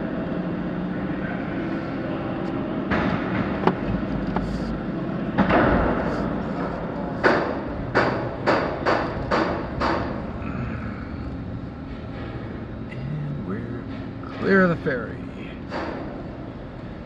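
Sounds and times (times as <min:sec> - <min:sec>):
heavy clunks: 0:02.9 - 0:04.6
car road hum: 0:03.3 - 0:07.3.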